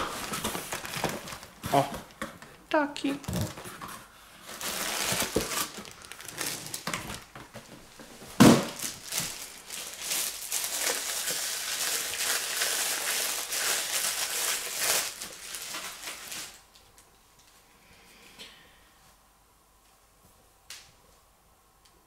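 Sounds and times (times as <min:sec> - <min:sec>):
plastic bag crinkling: 0:00.0 - 0:02.2, 0:04.4 - 0:16.7.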